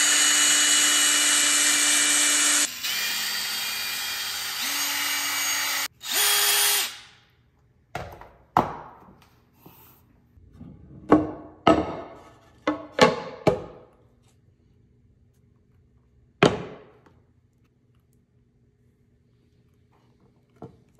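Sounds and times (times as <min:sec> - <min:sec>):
cordless drill running: 0:00.0 - 0:07.2.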